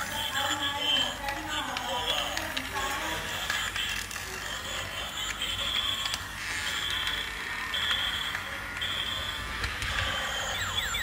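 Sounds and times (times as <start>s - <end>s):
toy running mechanism: 0.0s - 11.0s
toy truck high beep: 3.0s - 11.0s.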